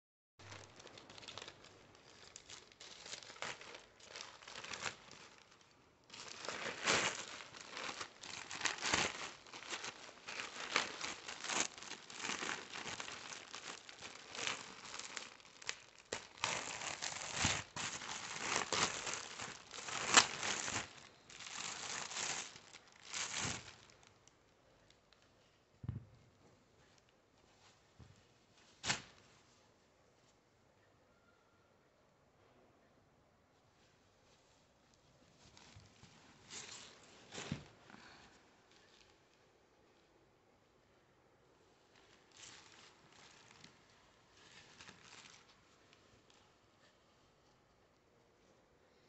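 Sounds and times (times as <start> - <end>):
plastic wrapping tearing and crinkling: 0.5 - 24.3, 42.0 - 45.6.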